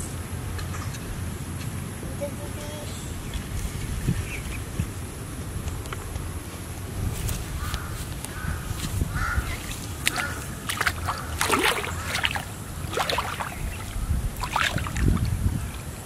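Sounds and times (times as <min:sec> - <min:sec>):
low steady rumble: 0:00.0 - 0:16.0
water sloshing and splashing: 0:07.2 - 0:16.0
harsh bird calls: 0:07.5 - 0:15.9.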